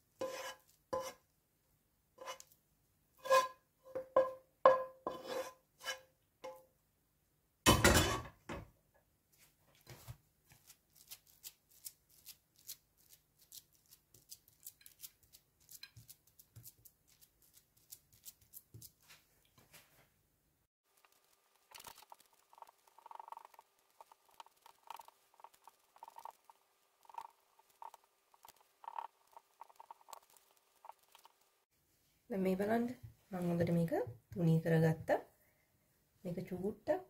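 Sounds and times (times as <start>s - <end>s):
utensil scraping a pan: 0.0s - 1.2s, 2.2s - 2.5s, 3.2s - 6.6s
utensil tapping a pan: 3.9s - 5.0s.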